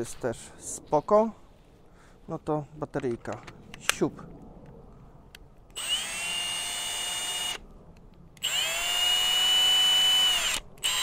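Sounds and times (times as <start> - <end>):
cordless drill whining: 5.7 - 7.6, 8.4 - 11.0.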